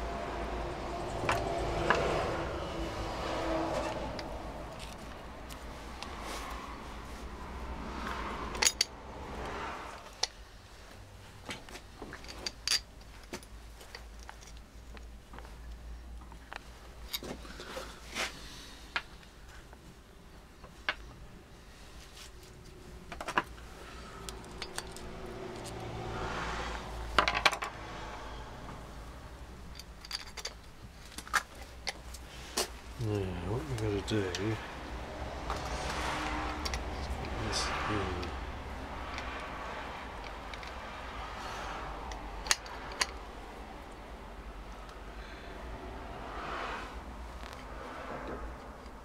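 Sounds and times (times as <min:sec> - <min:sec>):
metal parts clicking and clinking: 0:08.5 - 0:08.9, 0:12.1 - 0:14.6, 0:24.3 - 0:25.8, 0:29.6 - 0:32.1, 0:36.5 - 0:37.4, 0:42.1 - 0:43.2.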